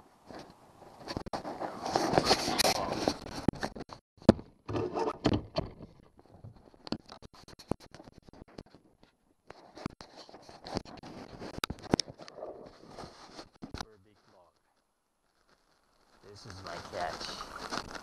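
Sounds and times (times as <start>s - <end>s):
rustling noise: 0.0s - 4.0s, 4.7s - 18.0s
scraping: 4.7s - 18.0s.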